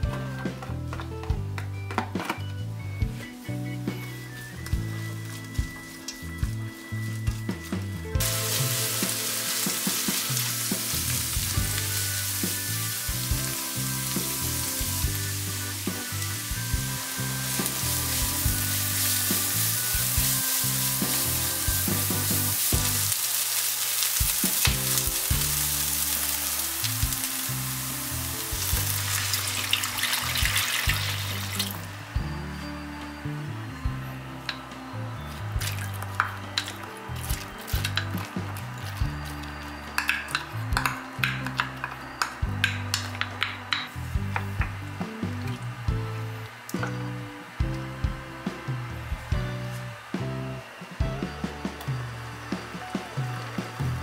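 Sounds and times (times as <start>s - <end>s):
water hissing in hot pan: 8.2s - 31.8s
onion sizzling in hot oil: 8.2s - 31.9s
spatula scraping and tapping pan: 39.2s - 44.7s.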